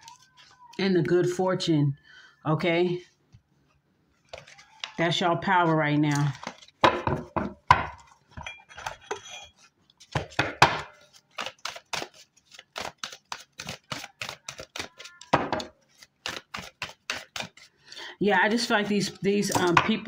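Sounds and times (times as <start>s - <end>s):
cards being shuffled: 0.0s - 1.0s, 4.2s - 6.8s, 11.0s - 17.7s.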